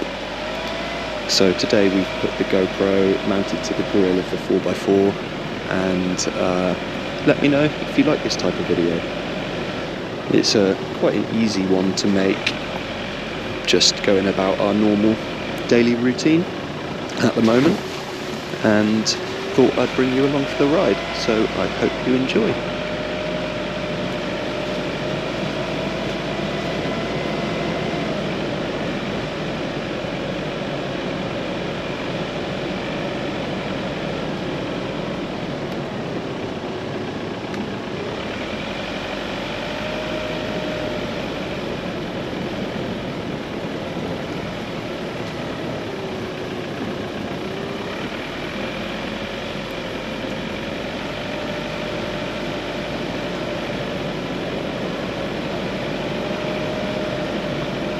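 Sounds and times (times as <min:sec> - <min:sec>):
vehicle engine and tyre noise: 0:00.0 - 0:57.9
whine drifting in pitch: 0:00.0 - 0:57.9.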